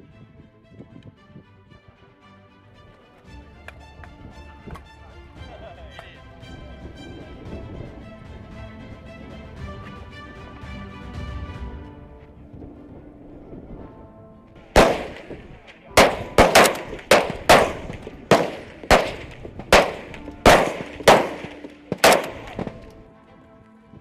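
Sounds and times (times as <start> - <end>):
faint background music: 0.0 - 24.0
rifle shots with echo: 14.7 - 23.0.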